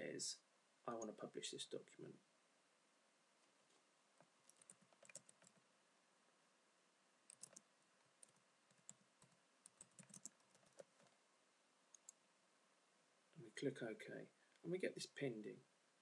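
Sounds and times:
typing on computer keyboard: 4.5s - 5.6s, 7.3s - 11.2s.

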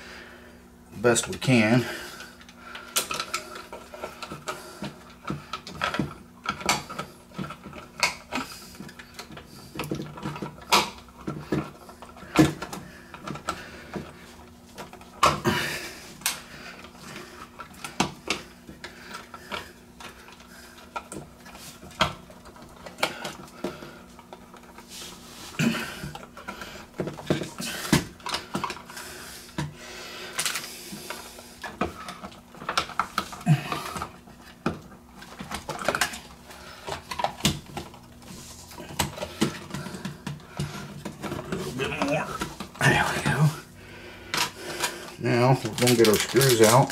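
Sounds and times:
clicks and knocks of wiring: 45.6s - 46.9s.

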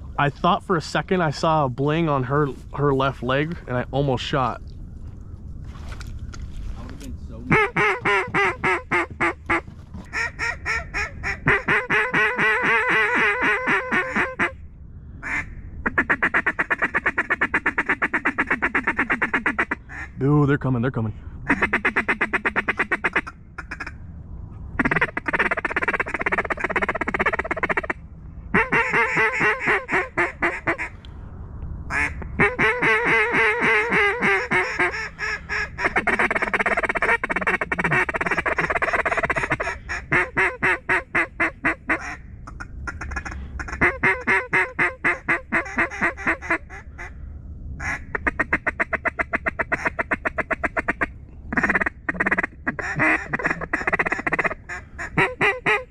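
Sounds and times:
duck call quacking: 7.5s - 14.6s, 15.2s - 20.1s, 21.5s - 23.9s, 24.8s - 28.0s, 28.6s - 30.9s, 31.9s - 47.1s, 47.8s - 55.9s.

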